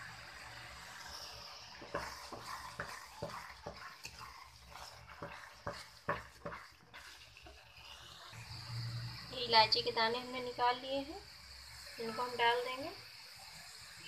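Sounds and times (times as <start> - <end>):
wooden spatula scraping pan: 0.8 - 8.2.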